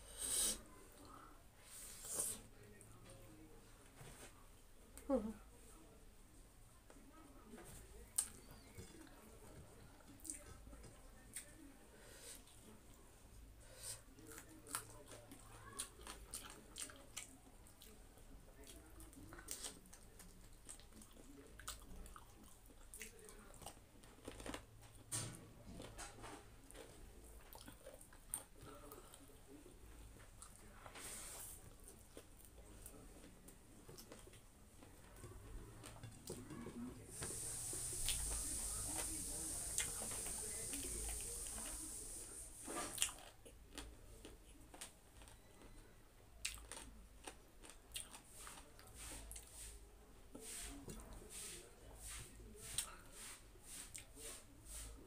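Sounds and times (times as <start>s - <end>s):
chewing and mouth sounds: 14.2s - 25.1s, 25.7s - 29.6s, 42.9s - 45.8s, 46.4s - 49.5s.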